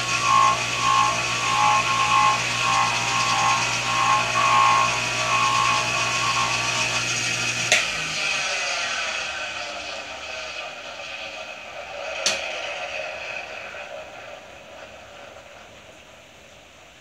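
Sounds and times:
bench grinder motor humming: 0:00.0 - 0:10.3
metal against polishing wheel whine: 0:00.0 - 0:15.6.

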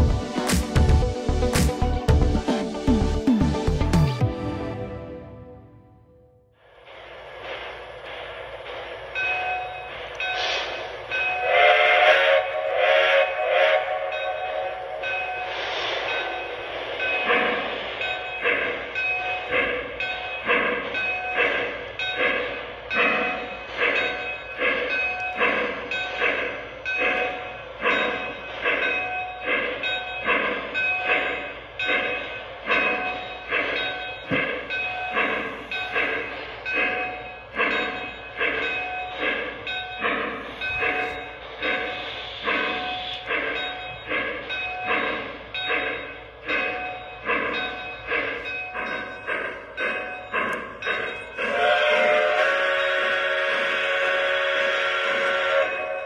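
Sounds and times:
toy train steam chuffs: 0:06.6 - 0:56.0
toy train whistle: 0:11.4 - 0:14.8, 0:51.4 - 0:56.0.

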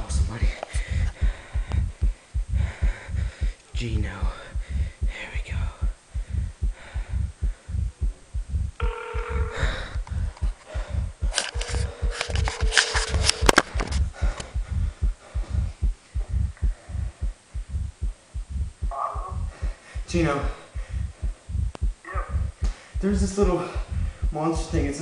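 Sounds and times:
low throbbing pulse: 0:00.0 - 0:24.9
phone call tones: 0:08.8 - 0:09.9.

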